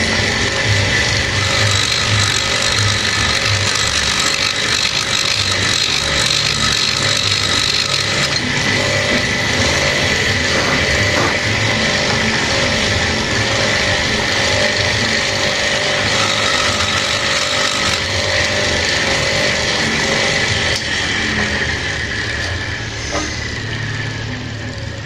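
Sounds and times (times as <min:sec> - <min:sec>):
electric drill whining: 0:00.0 - 0:25.0.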